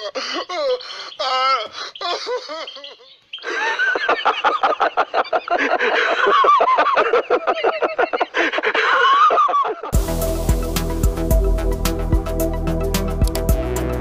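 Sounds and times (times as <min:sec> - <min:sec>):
men laughing heartily: 0:00.0 - 0:10.4
electronic music with steady beat: 0:10.0 - 0:14.0.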